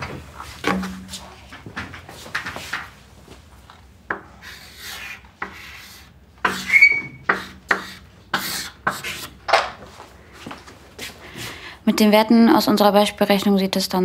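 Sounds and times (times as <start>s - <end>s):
chalk writing on chalkboard: 4.1s - 9.4s
chalk squeak: 4.4s - 9.3s.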